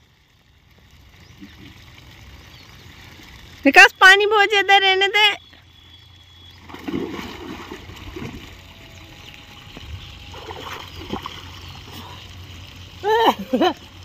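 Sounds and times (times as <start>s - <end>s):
splashing while swimming: 6.5s - 12.4s
person diving into water: 6.6s - 8.6s.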